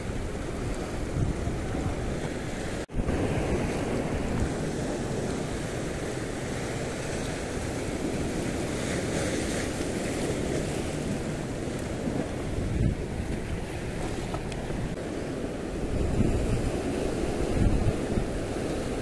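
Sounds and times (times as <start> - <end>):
waves washing on shore: 0.0 - 19.0
wind buffeting microphone: 0.0 - 19.0.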